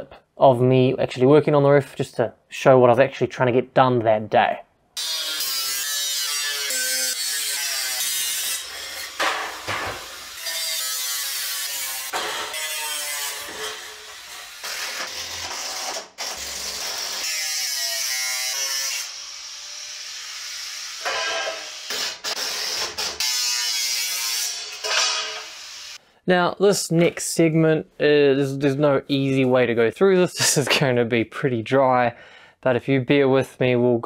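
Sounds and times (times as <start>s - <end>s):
angle grinder cutting metal: 5.0s - 26.0s
cordless drill-driver: 13.4s - 17.3s.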